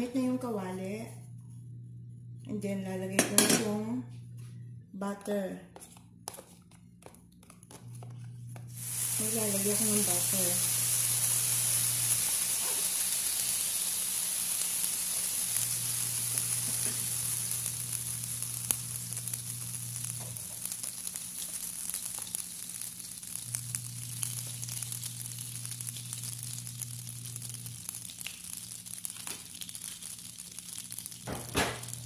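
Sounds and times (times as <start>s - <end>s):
spatula scraping and tapping: 5.7s - 8.7s
butter sizzling in a wok: 8.6s - 32.0s.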